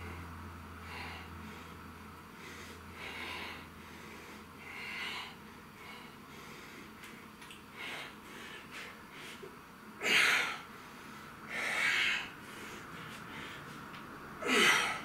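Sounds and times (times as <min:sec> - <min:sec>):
man exhaling forcefully: 0:14.4 - 0:15.0.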